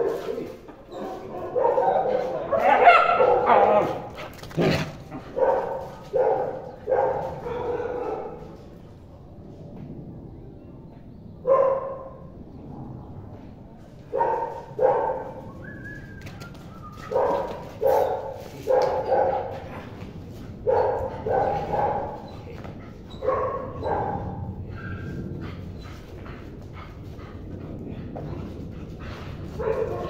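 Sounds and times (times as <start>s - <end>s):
dog barking: 0.0s - 8.5s, 11.4s - 12.2s, 14.1s - 15.4s, 17.1s - 19.8s, 20.6s - 22.2s, 23.2s - 25.1s, 29.6s - 30.0s.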